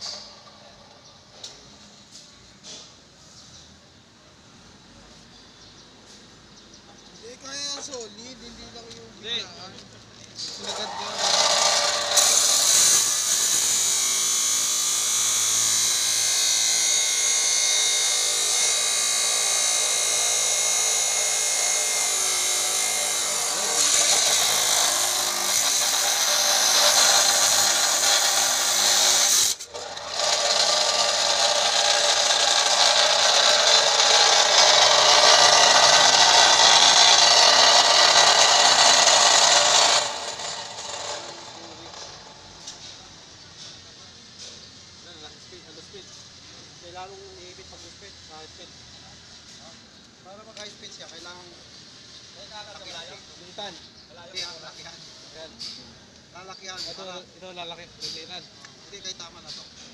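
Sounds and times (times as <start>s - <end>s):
angle grinder grinding steel: 10.5s - 43.0s.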